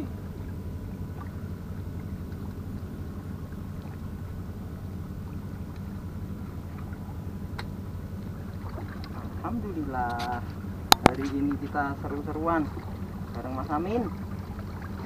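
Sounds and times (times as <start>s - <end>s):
boat engine droning: 0.0s - 15.0s
faint ticks: 5.7s - 5.9s.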